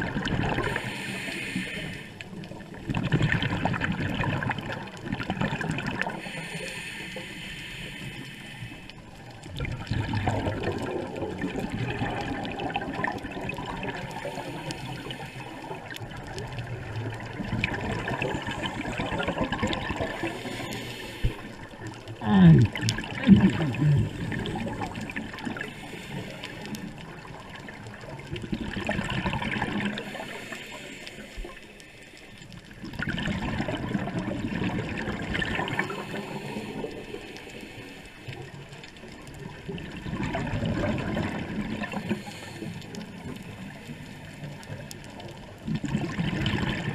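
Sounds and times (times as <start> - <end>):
low bubbling gurgles: 0.0 - 1.0, 2.2 - 6.4, 9.1 - 31.8, 32.4 - 46.9
diver breathing through regulator: 0.6 - 2.3, 6.1 - 9.0, 14.1 - 16.0, 18.4 - 22.8, 23.6 - 27.0, 30.0 - 32.3, 35.7 - 38.3, 41.9 - 43.1.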